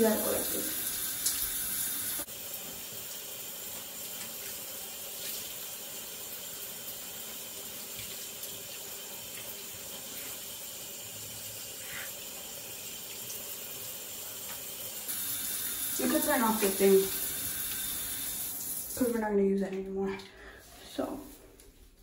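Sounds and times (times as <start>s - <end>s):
shower spray of water: 0.0s - 10.8s, 14.2s - 19.2s.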